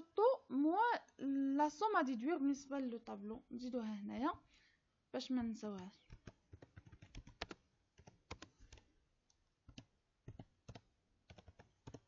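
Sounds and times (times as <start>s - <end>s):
faint keyboard typing: 5.4s - 12.0s.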